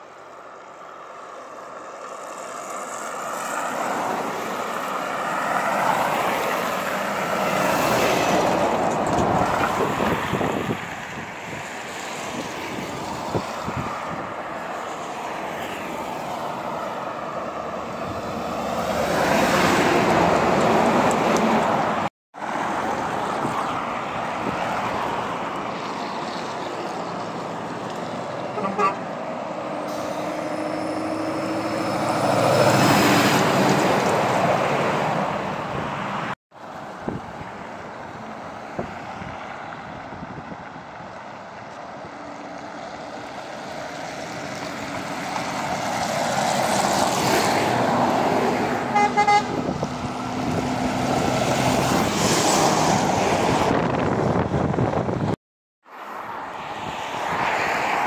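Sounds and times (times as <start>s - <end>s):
heavy trucks passing: 0.0s - 58.0s
truck horn: 28.5s - 29.1s, 48.8s - 49.8s.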